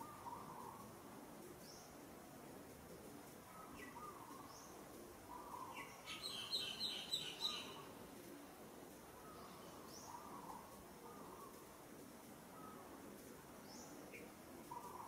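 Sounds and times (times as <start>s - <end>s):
birds chirping: 3.4s - 8.0s, 12.5s - 15.0s.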